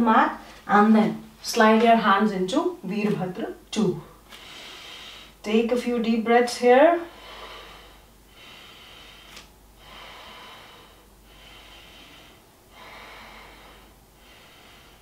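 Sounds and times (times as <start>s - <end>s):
woman breathing slowly: 4.2s - 5.4s, 7.1s - 15.0s.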